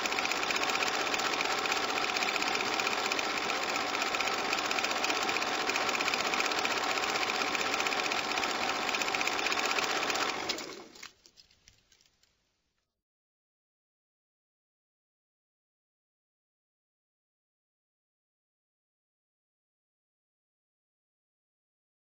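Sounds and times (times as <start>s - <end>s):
film projector clattering: 0.0s - 11.1s.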